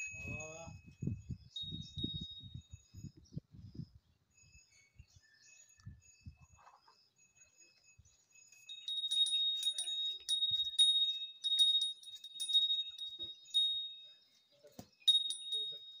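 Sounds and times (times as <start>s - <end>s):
small metal bell ringing: 0.0s - 3.4s, 4.2s - 16.0s.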